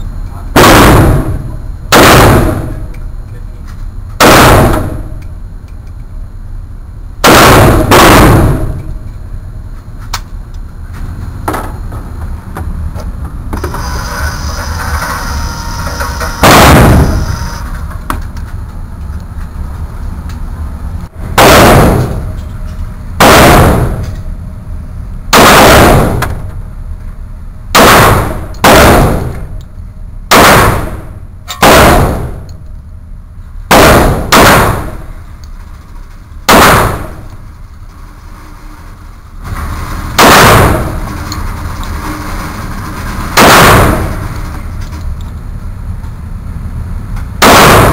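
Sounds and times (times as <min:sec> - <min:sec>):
pistol shots with echo: 0:00.5 - 0:02.9, 0:04.2 - 0:05.2, 0:07.2 - 0:09.0, 0:16.4 - 0:17.5, 0:21.4 - 0:22.3, 0:23.2 - 0:24.2, 0:25.3 - 0:26.6, 0:27.8 - 0:29.6, 0:30.3 - 0:32.5, 0:33.7 - 0:35.2, 0:36.5 - 0:37.3, 0:40.2 - 0:41.1, 0:43.4 - 0:44.3, 0:47.4 - 0:47.9.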